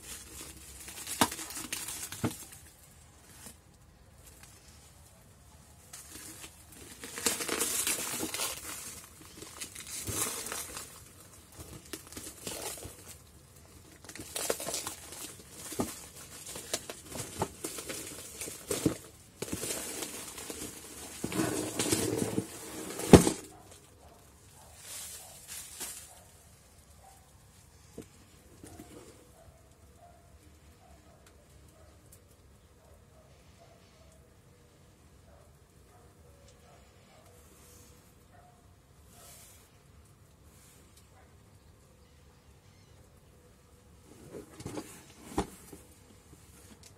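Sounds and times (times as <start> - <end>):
shrink wrap sharp crack: 0.0 - 4.6, 5.9 - 20.9
plastic shrink wrap crinkling: 0.0 - 27.0.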